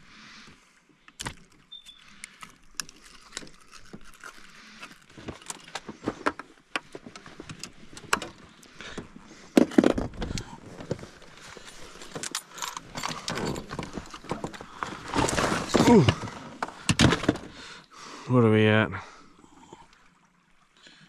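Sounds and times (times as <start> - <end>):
handling noise: 9.0 - 17.6.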